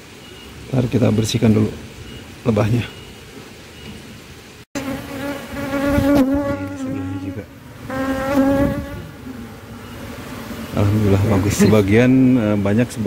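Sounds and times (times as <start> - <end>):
bees buzzing loudly: 4.8 - 12.3.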